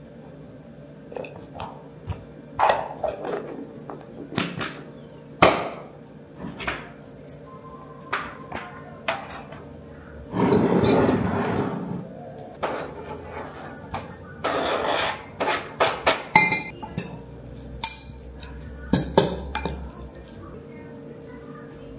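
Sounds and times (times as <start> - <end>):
soft background music: 7.4 - 9.4.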